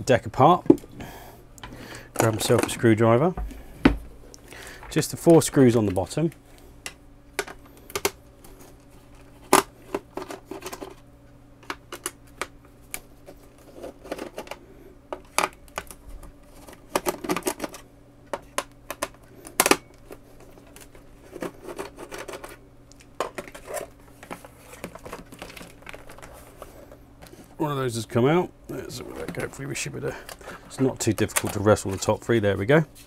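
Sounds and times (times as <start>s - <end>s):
hands shifting plastic case: 28.9s - 32.2s.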